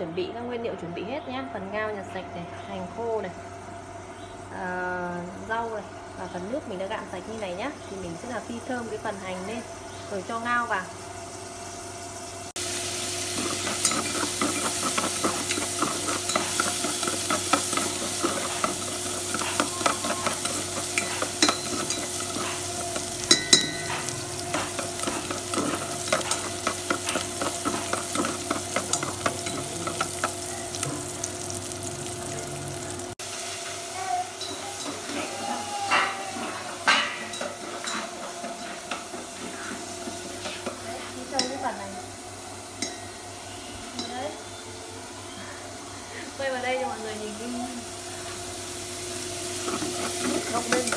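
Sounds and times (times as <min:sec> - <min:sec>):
shallots sizzling in hot oil: 0:02.9 - 0:50.9
utensil scraping pan: 0:13.2 - 0:31.2, 0:34.5 - 0:41.6, 0:49.5 - 0:50.9.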